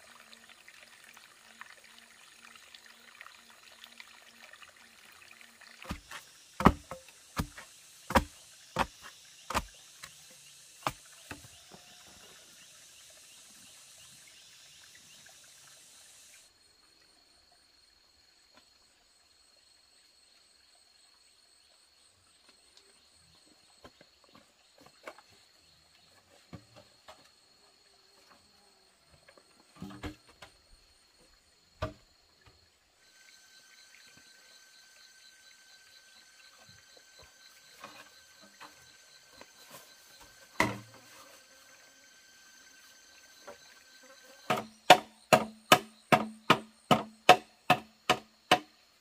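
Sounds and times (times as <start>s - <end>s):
sharp knocks: 5.9s - 9.7s, 44.5s - 48.7s.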